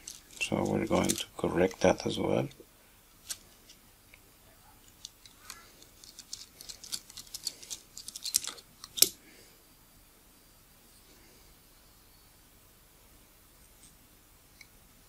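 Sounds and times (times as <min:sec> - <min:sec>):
small metallic clicks: 0:04.9 - 0:09.2.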